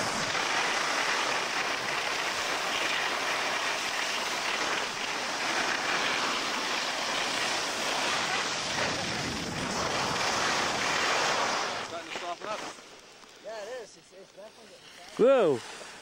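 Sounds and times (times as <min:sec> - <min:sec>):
skis sliding over snow: 0:00.0 - 0:16.0
wind on microphone: 0:08.0 - 0:11.9.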